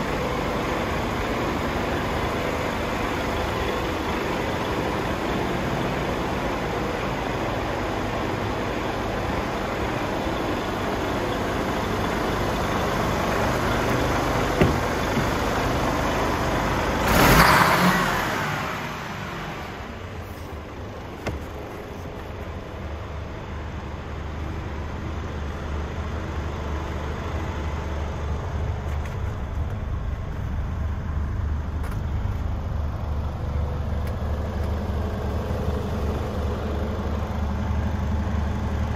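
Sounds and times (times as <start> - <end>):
diesel engine idling: 0.0 - 38.9
knock: 14.6 - 15.4.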